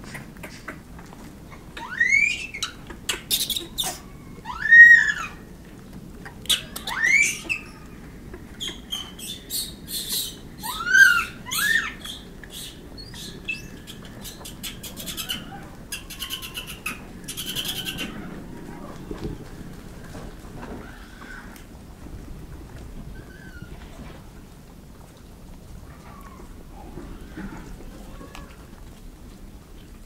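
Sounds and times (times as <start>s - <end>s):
monkeys giving high-pitched calls: 1.6s - 5.4s, 6.5s - 8.0s, 8.6s - 18.6s.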